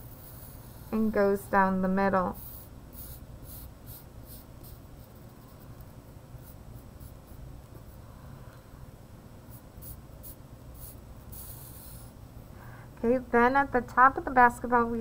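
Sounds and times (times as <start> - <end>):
low room hum: 0.0 - 15.0
marker stroking across paper: 2.4 - 8.0, 9.5 - 12.1.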